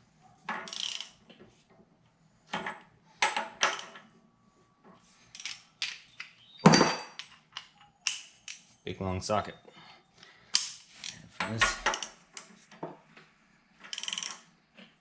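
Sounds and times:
socket ratchet clicking: 0.7s - 1.2s
metal tools clattering: 5.4s - 7.6s.

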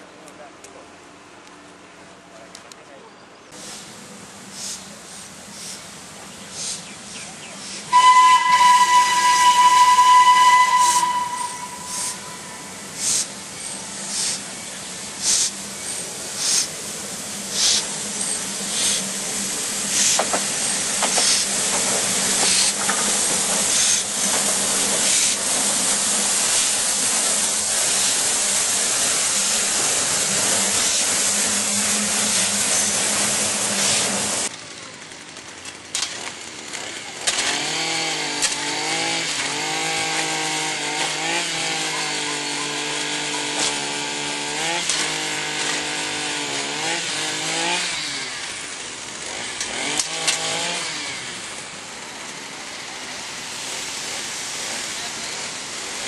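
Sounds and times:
loud hiss of steam: 3.5s - 34.5s, 39.2s - 56.0s
locomotive exhaust chuffs: 6.5s - 34.5s
steam whistle blast: 7.9s - 12.8s.

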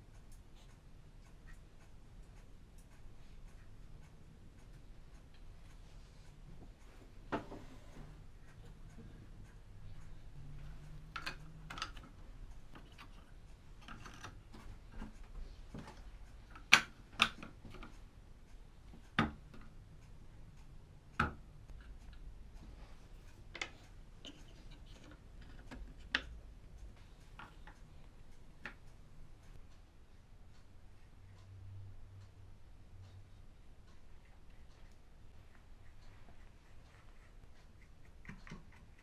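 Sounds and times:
wooden model parts clicking and knocking: 11.0s - 15.2s, 15.8s - 18.0s, 23.5s - 26.3s.

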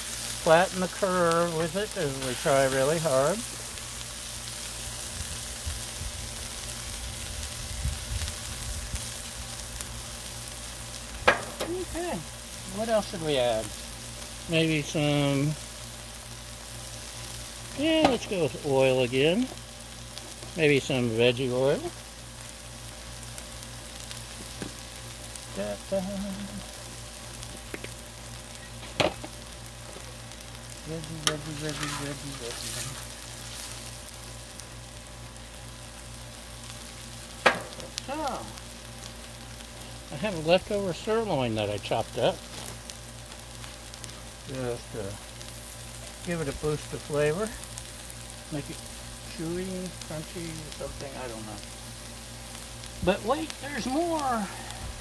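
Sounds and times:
vegetables sizzling on a griddle: 0.0s - 55.0s.

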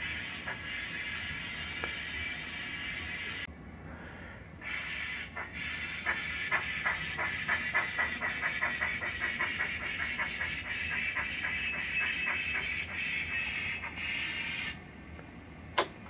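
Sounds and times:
steam hiss: 0.0s - 3.5s
steam locomotive exhaust chuffs: 0.0s - 3.5s, 4.6s - 14.8s.

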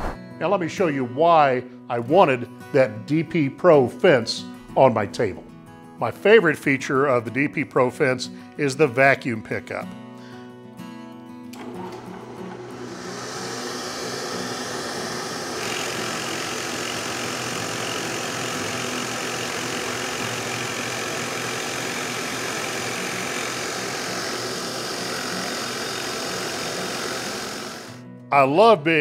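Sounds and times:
vacuum rushing: 0.0s - 0.2s, 11.7s - 16.0s
drill press boring into wood: 11.6s - 28.0s.

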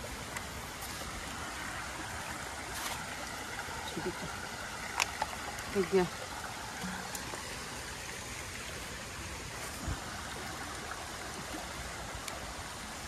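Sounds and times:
stream water running: 0.0s - 13.0s.

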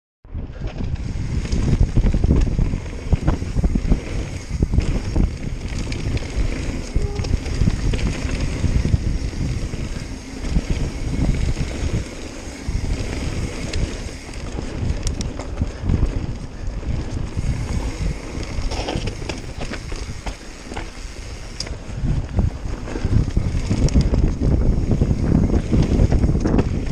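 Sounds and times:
wind buffeting microphone: 0.2s - 26.9s
bike clattering over rough ground: 0.5s - 26.9s
tyres rumbling on dirt: 0.5s - 26.9s.

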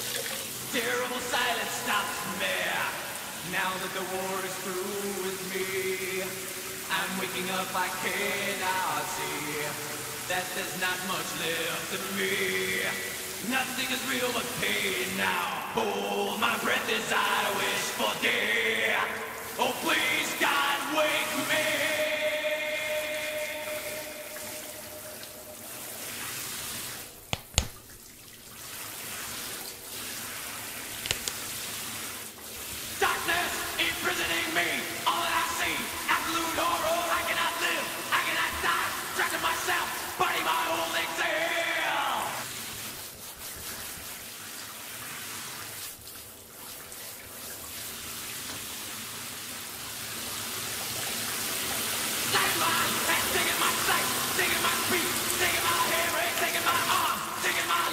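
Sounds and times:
shower water running: 0.0s - 57.9s
person singing: 0.7s - 25.4s, 33.0s - 42.5s, 52.3s - 57.9s.

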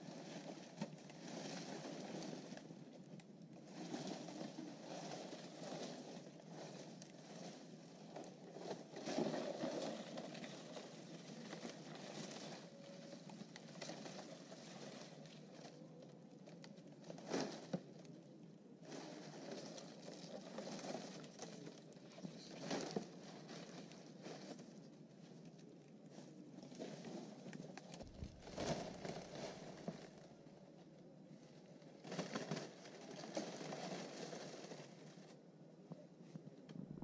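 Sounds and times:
dry leaves rustling and crinkling: 0.0s - 35.4s
campfire crackling: 27.8s - 29.1s.

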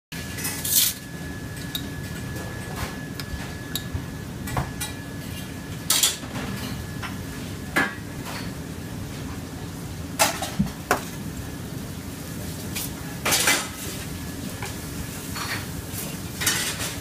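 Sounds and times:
steady low hum: 0.2s - 13.2s
utensils clinking on plates: 0.3s - 7.2s, 7.8s - 8.6s, 12.8s - 13.8s, 15.2s - 17.0s.

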